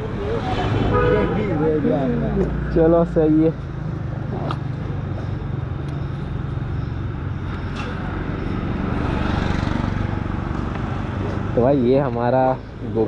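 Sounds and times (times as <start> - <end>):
street traffic: 0.0 - 13.0.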